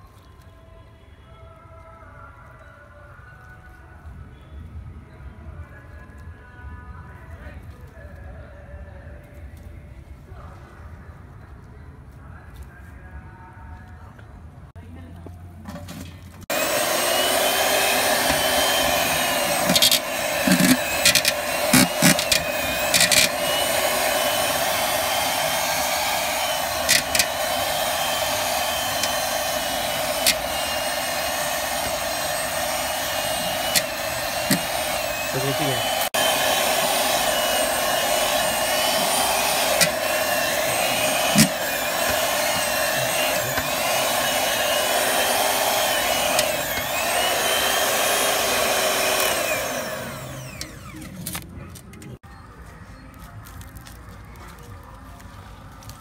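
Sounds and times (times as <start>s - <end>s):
electric hand mixer motor: 16.5s - 51.4s.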